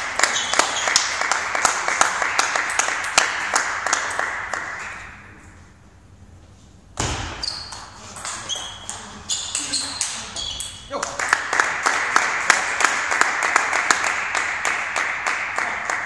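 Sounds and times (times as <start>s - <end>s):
spectators applauding: 0.0s - 5.0s, 8.2s - 16.0s.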